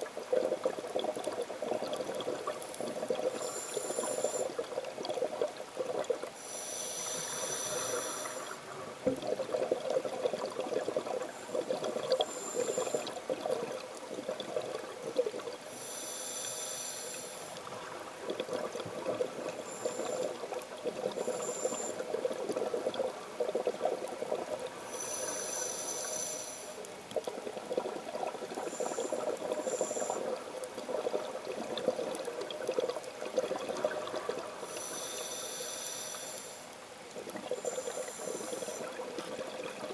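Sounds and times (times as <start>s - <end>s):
diver inhaling through regulator: 3.3s - 4.6s, 6.4s - 8.6s, 15.7s - 17.6s, 19.6s - 22.1s, 24.8s - 26.8s, 34.6s - 36.7s, 37.6s - 39.1s
exhaled bubbles rattling: 8.9s - 15.6s, 17.6s - 24.7s, 27.1s - 34.7s, 37.2s - 39.9s.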